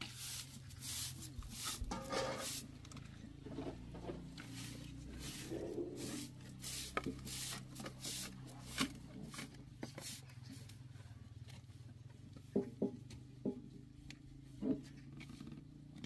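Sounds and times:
broom sweeping dirt: 0.0s - 2.8s, 4.0s - 10.7s.

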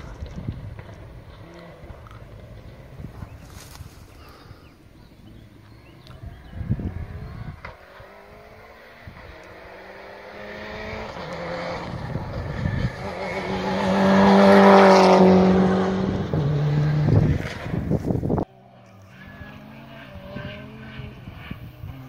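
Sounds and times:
rally car engine revving past: 5.2s - 22.0s.

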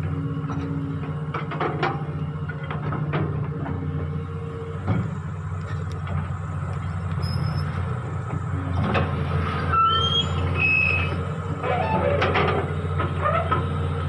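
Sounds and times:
excavator diesel engine running: 0.0s - 14.0s
short high squeals: 7.2s - 7.9s, 9.6s - 12.2s.

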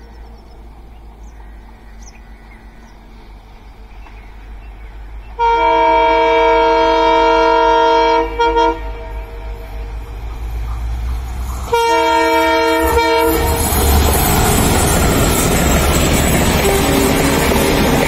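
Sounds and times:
locomotive low rumble: 0.0s - 18.0s
locomotive horn blasts: 5.4s - 10.1s, 11.7s - 14.0s, 16.5s - 18.0s.

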